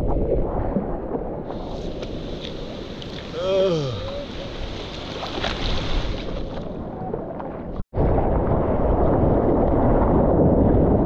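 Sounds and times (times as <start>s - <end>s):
ocean surf churning: 1.4s - 7.2s.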